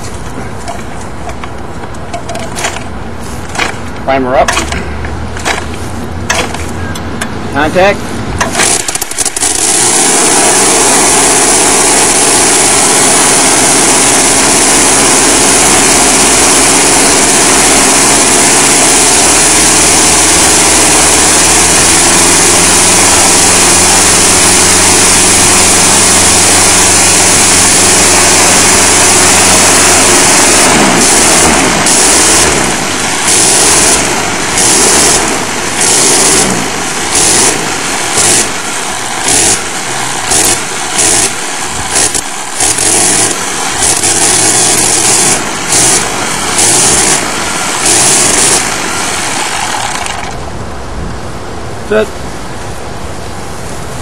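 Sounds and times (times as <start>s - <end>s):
rotary engine running: 8.1s - 50.6s.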